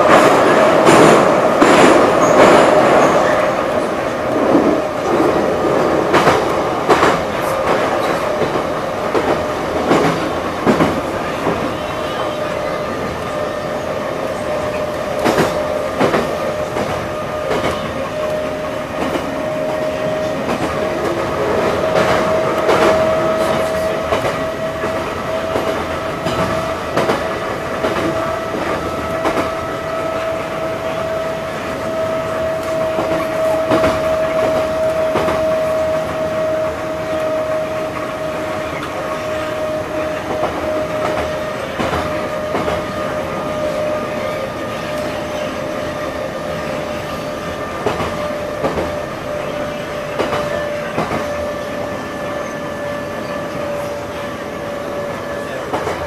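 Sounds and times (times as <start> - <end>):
metro train rumble and whine: 0.0 - 56.0.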